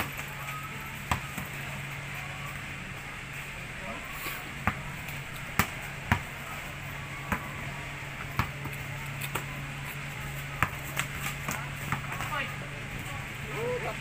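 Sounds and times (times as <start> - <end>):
basketball bouncing on concrete: 1.0 - 1.6, 4.6 - 6.4, 7.3 - 7.5, 8.2 - 9.6, 10.6 - 12.4.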